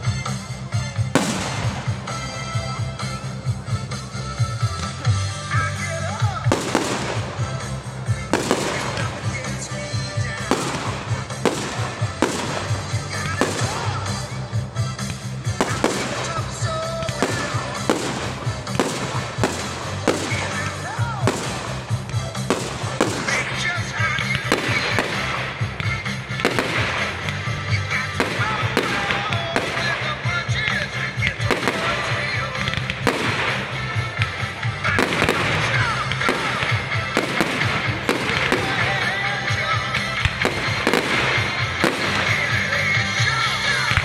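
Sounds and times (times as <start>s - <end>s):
fireworks crackling: 0.0s - 44.0s
fireworks exploding: 0.0s - 44.0s.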